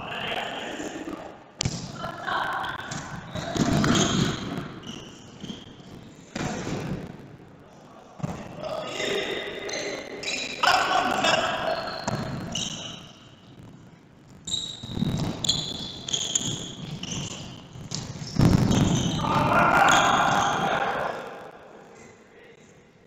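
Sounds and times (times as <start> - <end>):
shoes squeaking on court: 3.3 - 5.9, 11.7 - 13.1, 14.4 - 19.2
players shouting: 19.1 - 21.6.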